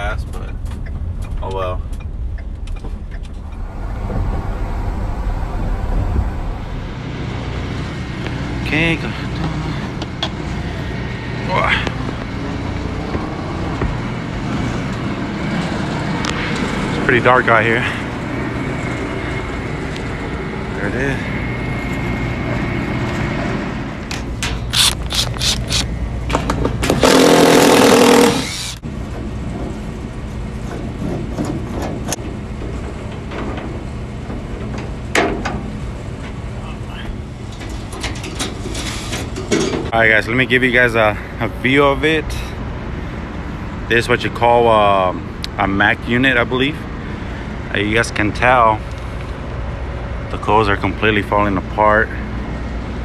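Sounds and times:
van road and engine rumble: 0.0s - 53.0s
cordless impact driver: 24.6s - 25.9s, 26.9s - 28.8s.

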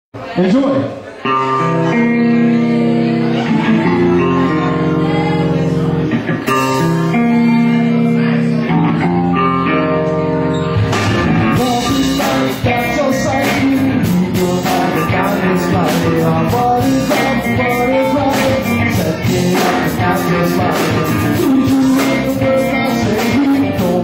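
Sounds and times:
electric guitar chords: 1.2s - 24.0s
live rock band playing: 1.2s - 24.0s
drums and cymbals: 10.7s - 24.0s.

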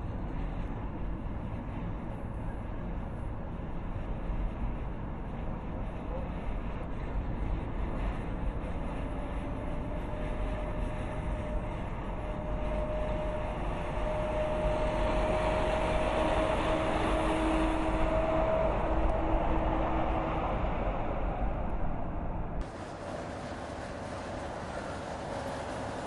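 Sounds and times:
faint rising whine: 7.8s - 26.0s.

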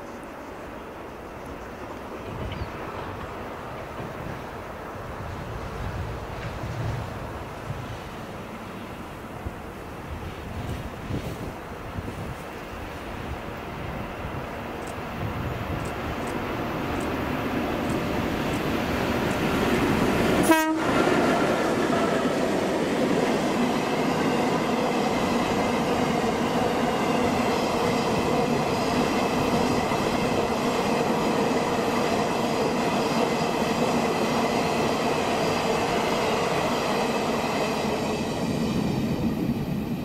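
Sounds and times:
diesel locomotives passing: 0.0s - 40.0s
train wagons rumbling and clacking: 0.0s - 40.0s
loud horn blip: 20.4s - 20.9s.

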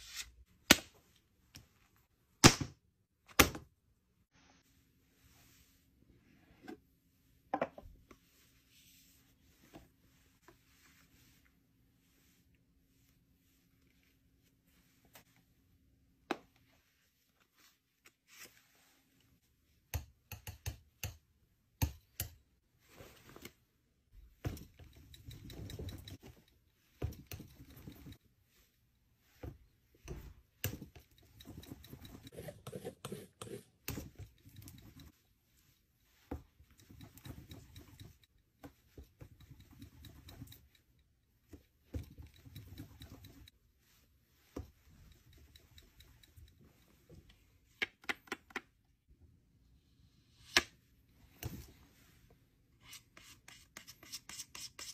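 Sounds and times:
palette knife scraping paint: 31.3s - 35.2s, 52.8s - 54.9s.

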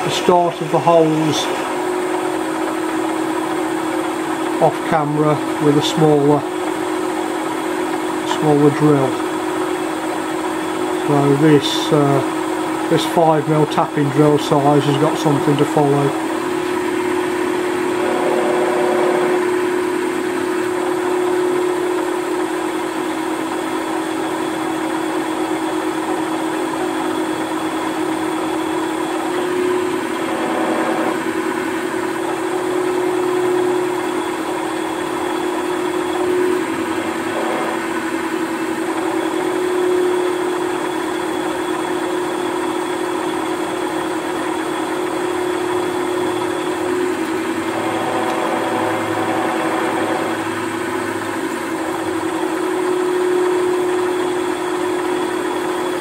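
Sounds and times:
drill cutting metal: 0.0s - 7.1s, 12.9s - 22.0s, 27.8s - 56.0s
milling machine motor running: 0.0s - 56.0s.

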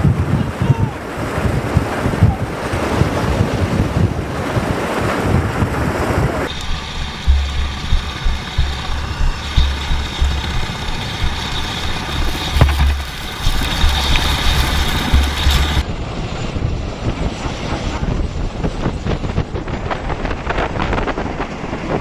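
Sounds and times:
wind buffeting microphone: 0.0s - 22.0s
aircraft rotors running: 1.0s - 21.9s.

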